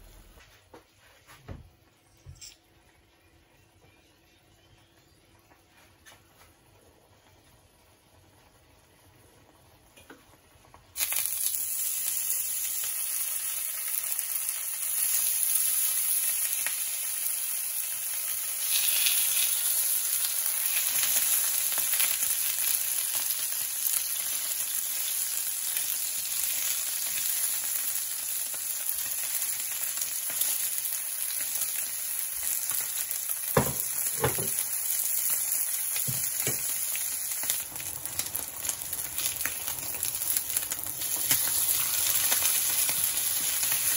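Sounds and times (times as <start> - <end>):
meat sizzling in oil: 10.9 - 43.9.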